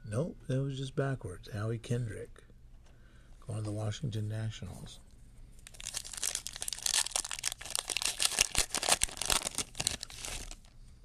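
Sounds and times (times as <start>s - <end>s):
foil wrapper crinkling and tearing: 5.6s - 10.7s.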